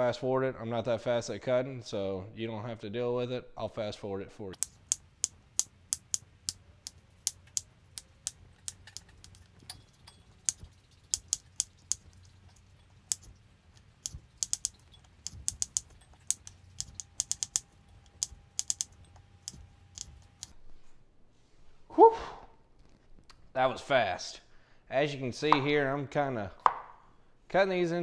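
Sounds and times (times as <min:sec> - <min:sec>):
knife chopping on wooden board: 0:26.6 - 0:27.0.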